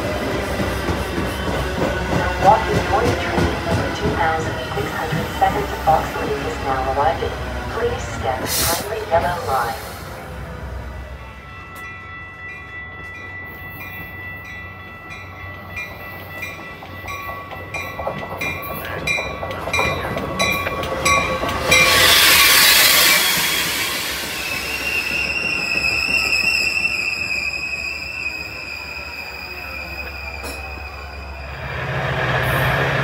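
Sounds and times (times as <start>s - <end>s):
railroad bell clanging: 0.0s - 33.0s
train arriving: 0.0s - 33.0s
loud rushing hiss: 21.8s - 25.0s.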